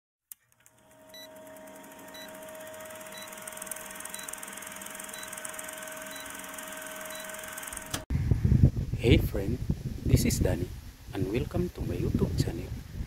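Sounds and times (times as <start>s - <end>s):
short high beeps: 3.1s - 3.5s, 4.1s - 4.4s, 5.1s - 6.5s, 7.1s - 7.5s.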